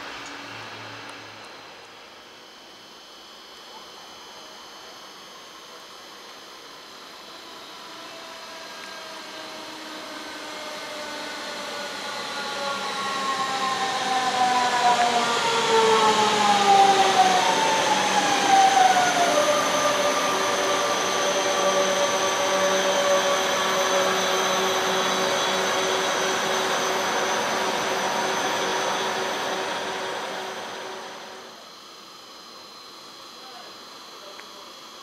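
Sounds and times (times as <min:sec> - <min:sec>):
electric train braking: 0:00.0 - 0:03.3, 0:06.6 - 0:31.6
whining traction drive tones: 0:00.0 - 0:03.6, 0:06.3 - 0:31.9.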